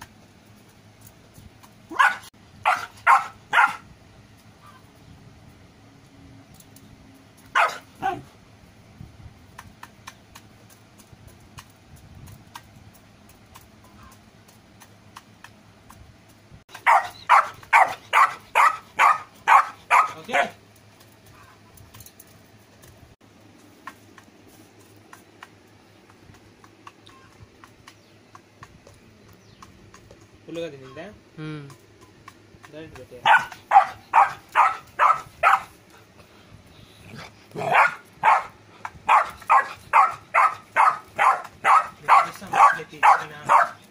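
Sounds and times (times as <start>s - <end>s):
puppy barking: 1.9s - 3.9s, 7.5s - 8.3s, 16.7s - 20.6s, 33.2s - 35.8s, 37.5s - 43.9s.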